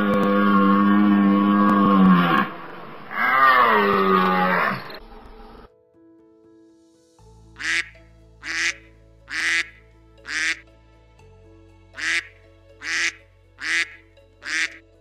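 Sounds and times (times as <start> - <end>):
soft background music: 0.0 - 15.0
duck quacking: 7.6 - 10.6, 12.0 - 14.8.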